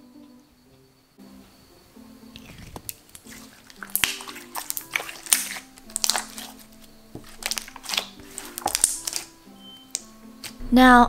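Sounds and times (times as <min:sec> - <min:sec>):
quiet background music: 0:00.0 - 0:11.0
slime crackling and popping: 0:02.4 - 0:10.6.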